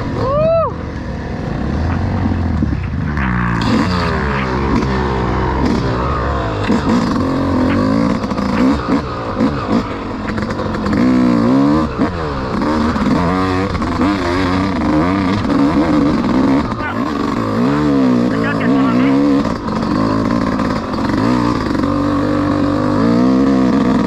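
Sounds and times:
dirt bike engine revving: 0.9s - 24.0s.

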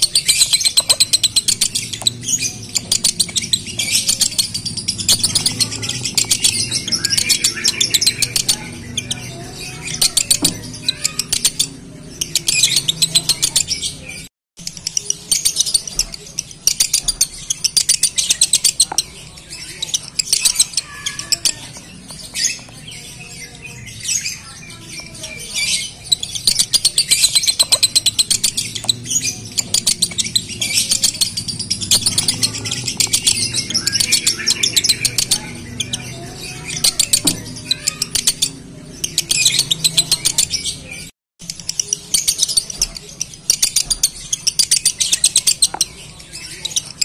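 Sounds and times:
bird chattering fast trills: 0.0s - 47.0s.

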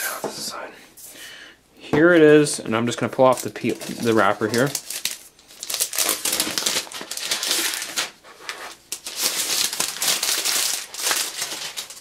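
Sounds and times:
plastic wrapper crinkling: 2.9s - 12.0s.

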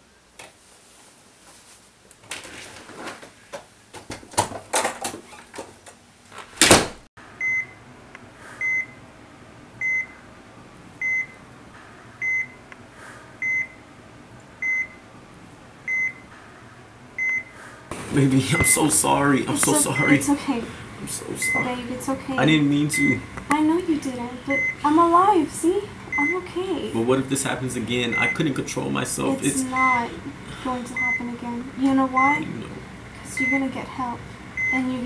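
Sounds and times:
patient monitor beeping: 7.4s - 7.8s, 8.6s - 9.0s, 9.8s - 10.2s, 11.0s - 12.7s, 13.4s - 13.8s, 14.6s - 15.1s, 15.8s - 35.0s.

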